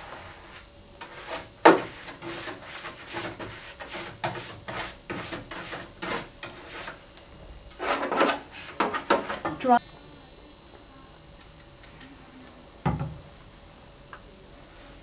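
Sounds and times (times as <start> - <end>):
brush scrubbing plastic: 0.0 - 7.0.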